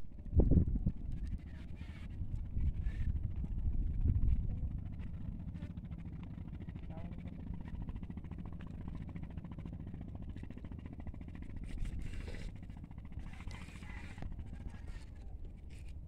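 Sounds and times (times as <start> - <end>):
wind buffeting microphone: 0.1 - 6.7.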